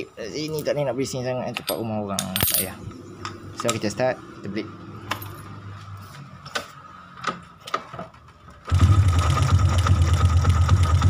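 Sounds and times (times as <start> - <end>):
motorcycle engine running: 8.7 - 11.0.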